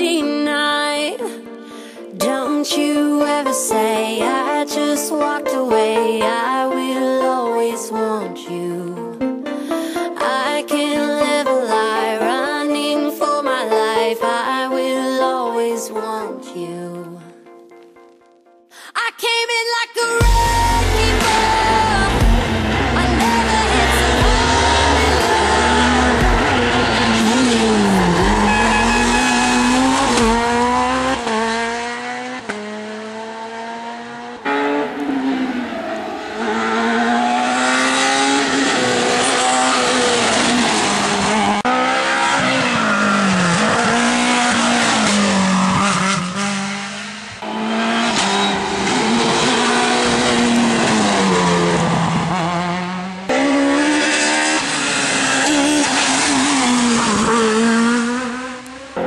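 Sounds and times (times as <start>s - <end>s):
rally car engines revving: 20.2s - 59.0s.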